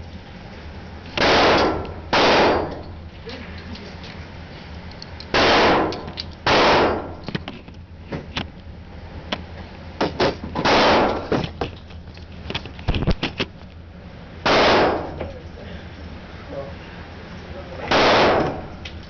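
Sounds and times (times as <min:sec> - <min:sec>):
loud gunshots with echo: 0:01.2 - 0:02.8, 0:05.3 - 0:07.2, 0:10.6 - 0:11.3, 0:14.4 - 0:15.2, 0:17.9 - 0:18.7.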